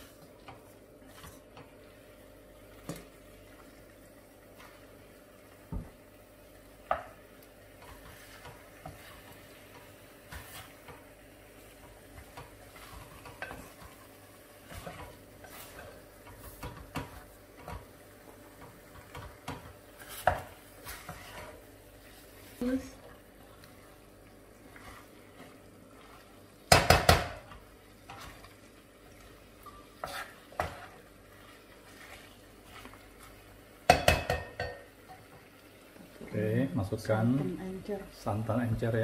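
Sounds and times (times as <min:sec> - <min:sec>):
faint sizzle of meat frying: 0:00.0 - 0:39.0
utensil scraping metal pot: 0:20.0 - 0:21.6, 0:29.7 - 0:33.0.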